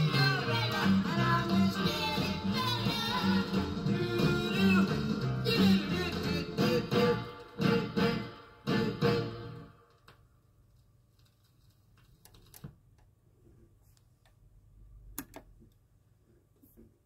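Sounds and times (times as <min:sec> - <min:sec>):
doo-wop record chord: 0:00.0 - 0:09.8
vinyl surface noise: 0:10.0 - 0:17.0.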